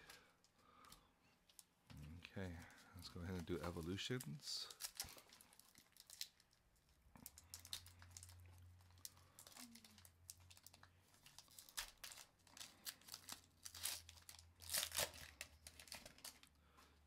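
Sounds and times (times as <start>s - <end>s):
foil wrapper tearing and crinkling: 3.2s - 6.6s, 7.2s - 16.5s.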